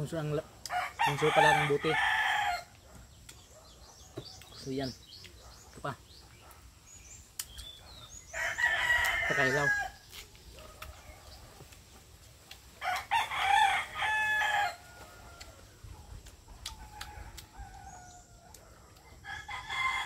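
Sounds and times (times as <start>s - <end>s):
rooster crowing: 0.7s - 2.8s, 8.3s - 10.0s, 12.8s - 15.7s, 16.8s - 20.0s.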